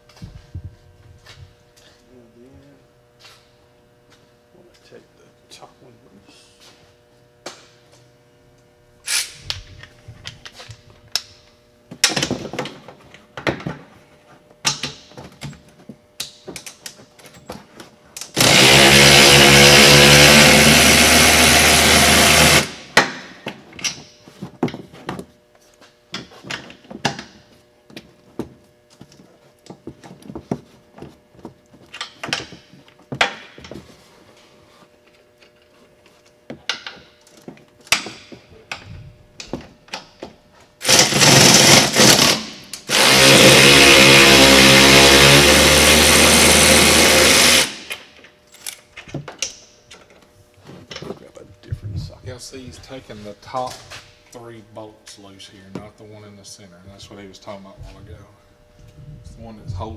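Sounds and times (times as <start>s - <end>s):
power tool spinning nuts: 18.2s - 22.9s, 40.8s - 48.1s.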